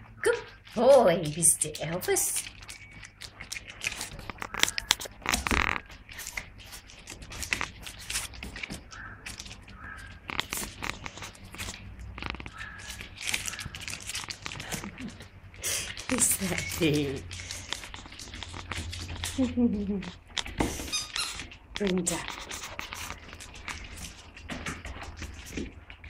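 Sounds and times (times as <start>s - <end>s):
puppies squeaking: 0.0s - 26.0s
newspaper crinkling and rustling: 1.3s - 19.4s, 21.2s - 25.8s.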